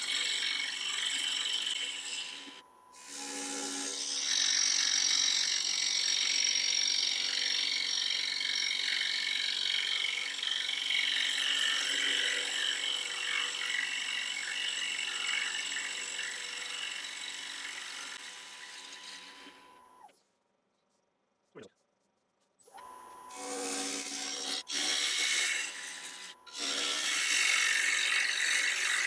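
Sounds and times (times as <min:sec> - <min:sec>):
wood lathe whine: 0:00.0 - 0:20.1, 0:22.7 - 0:29.0.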